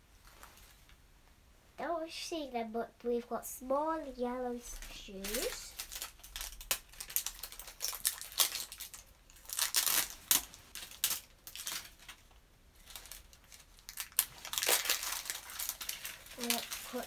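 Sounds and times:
plastic wrapping crinkling and tearing: 4.7 - 17.0.

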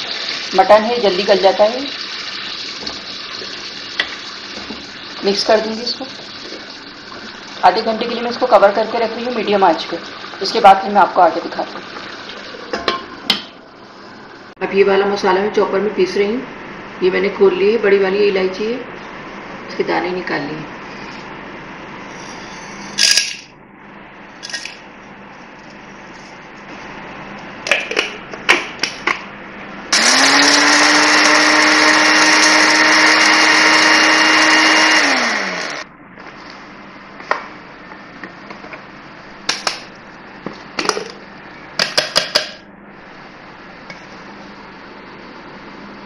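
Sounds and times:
electric spice grinder whining: 29.9 - 35.9.

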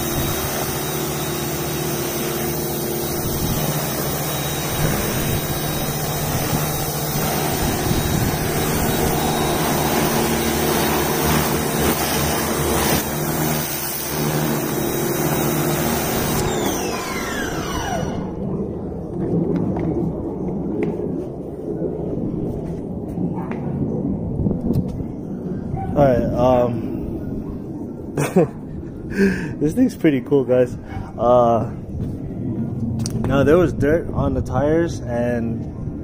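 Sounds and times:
water jet hissing on car: 0.0 - 18.4
pressure washer motor humming: 0.0 - 18.5.

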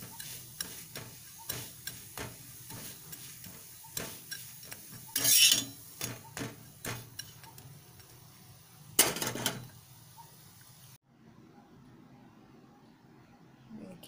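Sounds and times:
spatula scraping on griddle: 0.0 - 8.3.

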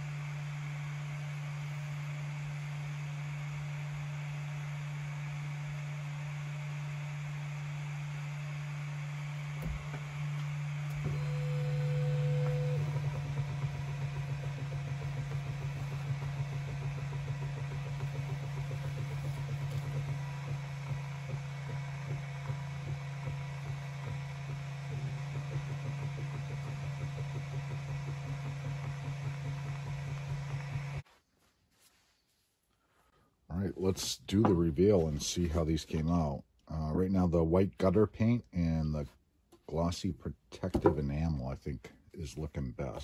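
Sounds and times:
laser engraver motor and fan hum: 0.0 - 31.0.

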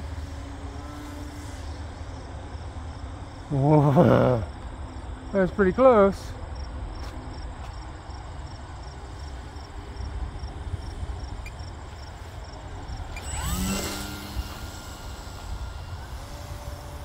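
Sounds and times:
model plane electric motor whine: 0.0 - 3.6, 8.6 - 17.0
crickets chirping: 0.0 - 17.0.

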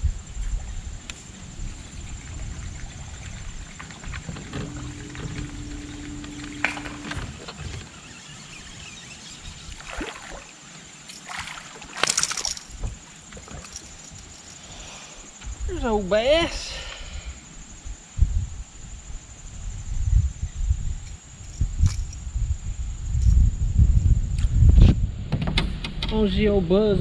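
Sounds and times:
trolling motor humming: 1.8 - 14.7
fish splashing out of water: 9.8 - 14.2.

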